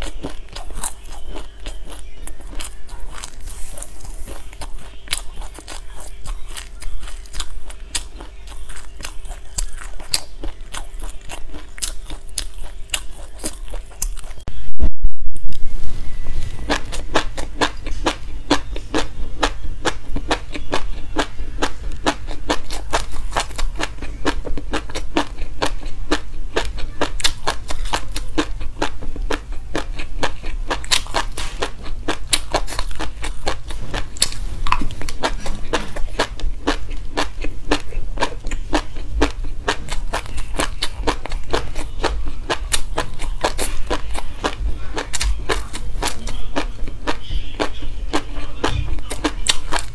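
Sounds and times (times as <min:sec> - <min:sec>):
chewing crunchy seeds: 0:00.0 - 0:14.5, 0:15.5 - 0:49.9.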